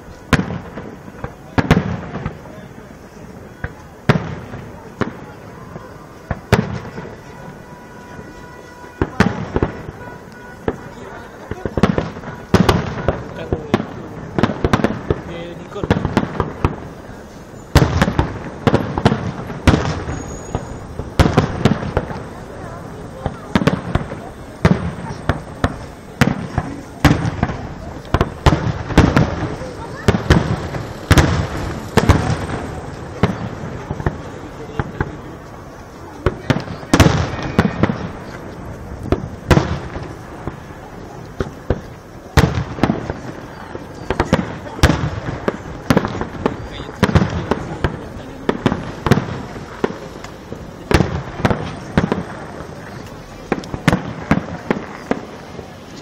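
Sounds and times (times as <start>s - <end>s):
fireworks bangs: 0.0s - 56.0s
small fireworks pops: 0.0s - 56.0s.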